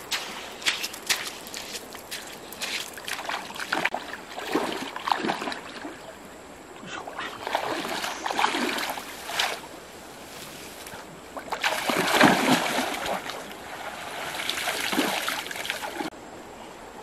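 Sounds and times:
water splashing around wading legs: 0.1 - 6.0, 7.2 - 9.8, 11.3 - 16.1.

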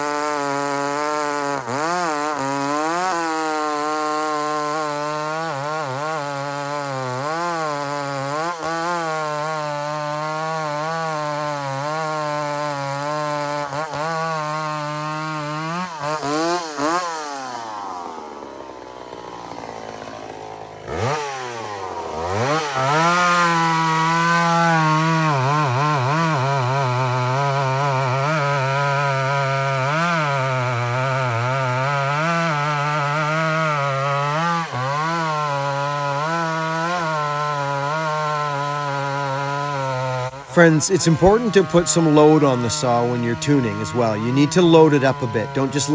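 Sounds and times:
chainsaw cutting log: 0.0 - 45.9.

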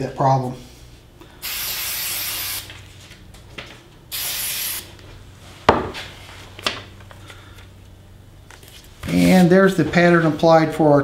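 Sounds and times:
aerosol can hissing: 1.4 - 2.7, 4.1 - 4.9.

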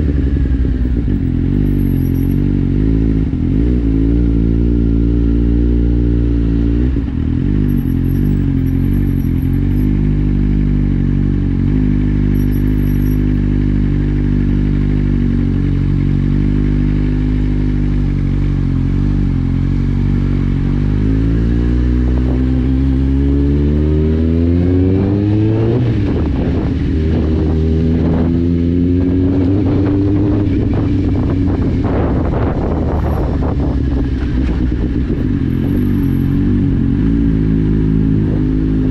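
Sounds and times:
motorcycle engine accelerating: 0.0 - 38.9.

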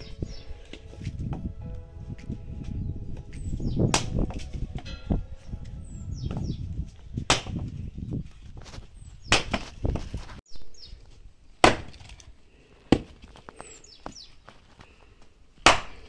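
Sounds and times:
axe chopping firewood: 3.8 - 4.5, 7.2 - 7.7, 9.3 - 10.0, 11.6 - 13.4, 15.6 - 16.0.

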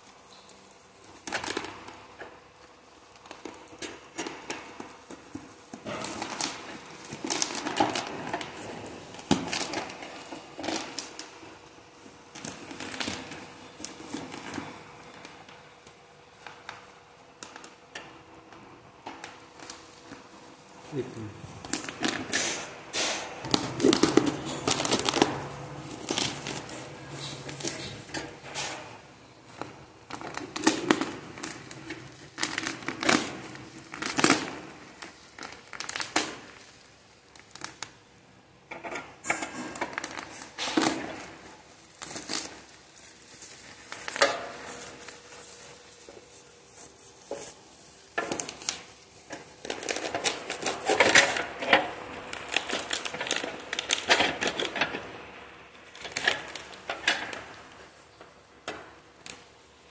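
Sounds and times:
bubble wrap crinkling: 0.0 - 17.8, 19.2 - 38.1, 39.6 - 59.9
packing tape ripping: 3.1 - 11.5, 20.9 - 29.0, 29.6 - 38.0, 39.2 - 55.1.

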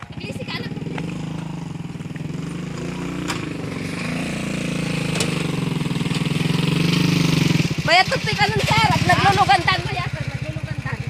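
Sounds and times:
vehicle engine running: 0.0 - 11.0.

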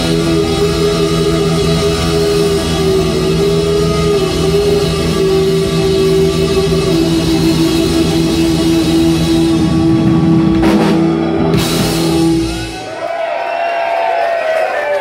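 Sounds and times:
live rock band chord: 0.0 - 13.0
drum rolls: 6.3 - 13.3.

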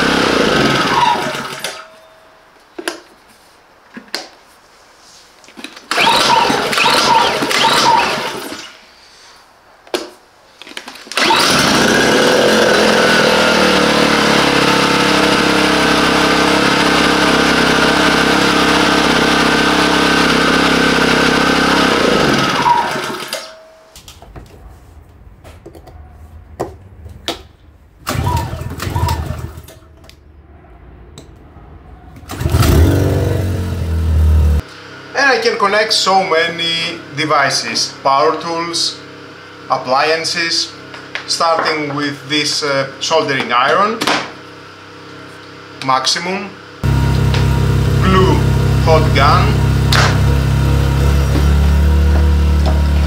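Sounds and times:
generator engine running: 0.0 - 1.8, 5.9 - 8.7, 11.1 - 24.9, 28.0 - 30.2, 32.2 - 43.2, 44.4 - 53.0.

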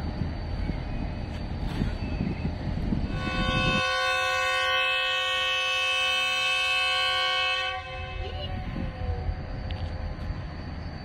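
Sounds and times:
locomotive horn blast: 3.1 - 9.0.

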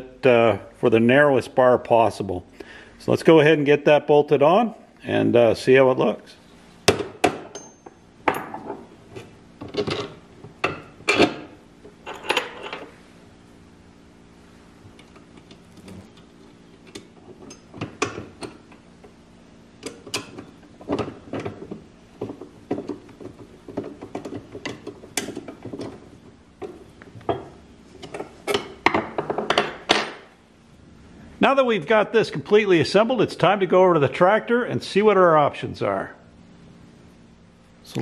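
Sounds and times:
metal hardware clinking on wood: 7.5 - 8.8.

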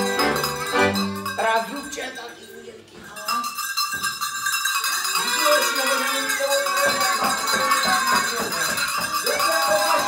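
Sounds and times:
folk melody: 0.0 - 2.1
bells and rattles shaken: 0.0 - 10.0.

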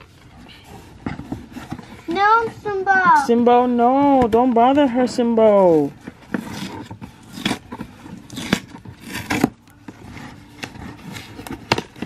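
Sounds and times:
cardboard box ripping and scraping: 5.6 - 12.0.

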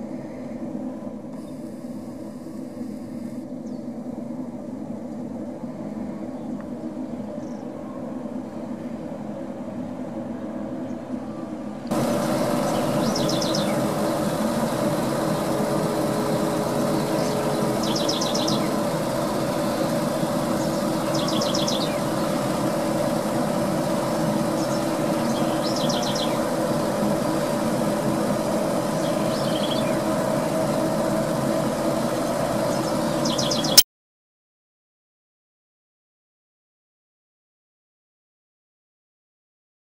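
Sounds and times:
extractor fan droning hum: 11.6 - 33.8
exhaust stacks humming: 11.9 - 33.8
bird trilled chirps: 12.0 - 22.5, 24.5 - 26.4.

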